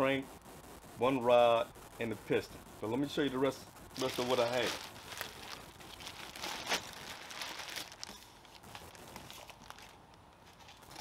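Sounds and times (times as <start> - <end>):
plastic bag crinkling: 4.0 - 11.0.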